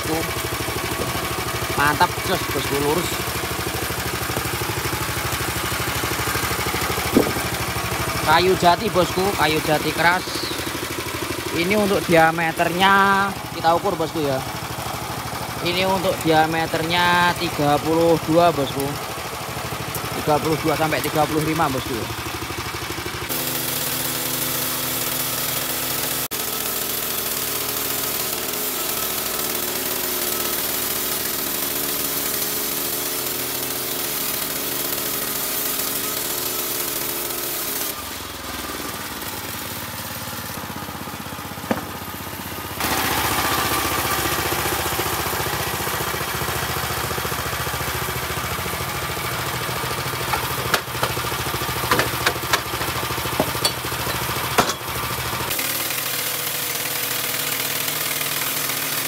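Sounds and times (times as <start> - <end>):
bandsaw mill sawing a log: 0.0 - 59.0
board knocking: 7.1 - 7.5, 41.6 - 42.0, 51.9 - 54.8.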